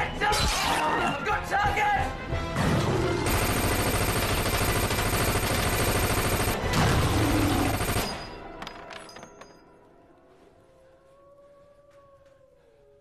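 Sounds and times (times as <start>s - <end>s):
automatic rifle fire: 3.3s - 6.8s.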